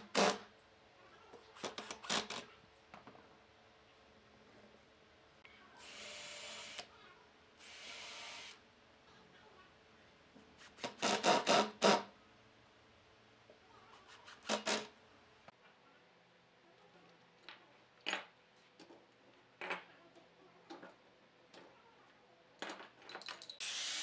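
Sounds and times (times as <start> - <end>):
cordless drill whirring: 5.8 - 6.8.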